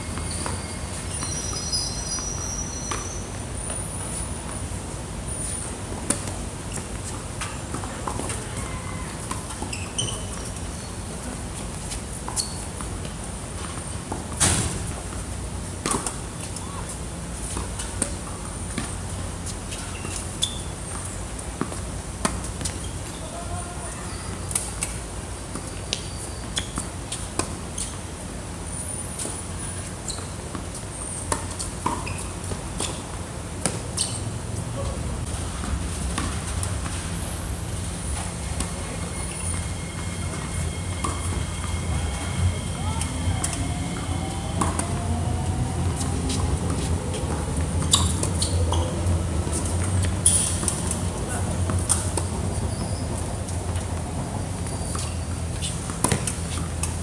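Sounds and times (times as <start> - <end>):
shoes squeaking on court: 0.0 - 57.0
steady low rumble: 34.6 - 50.2
tennis ball hitting racket: 44.6 - 45.0.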